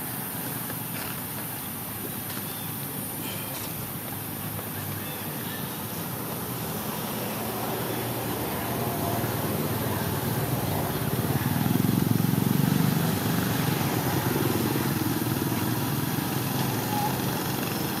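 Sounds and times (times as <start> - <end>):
motor engine running: 4.0 - 18.0.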